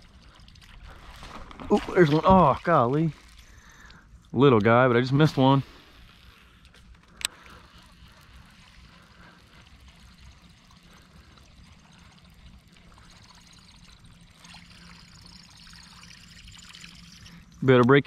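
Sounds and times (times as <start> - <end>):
water trickling and splashing: 0.0 - 18.0.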